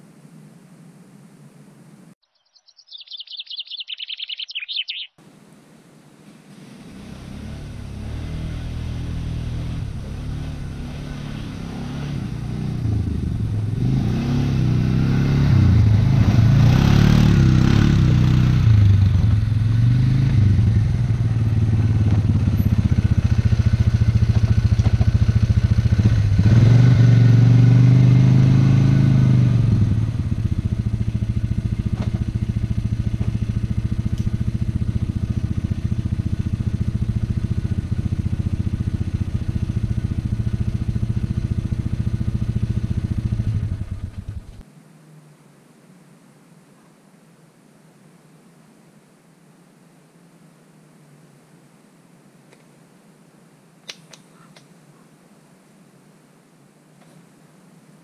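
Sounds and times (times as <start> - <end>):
quad bike engine revving: 6.5 - 44.6.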